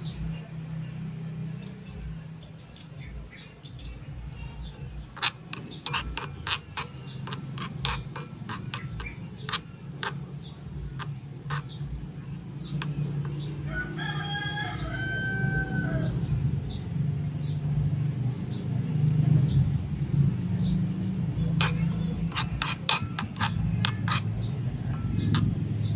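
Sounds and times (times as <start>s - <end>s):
steady low rumble: 0.0s - 14.0s
metal spatula scraping wok: 1.6s - 14.0s, 20.9s - 25.9s
rooster crowing: 13.6s - 16.3s.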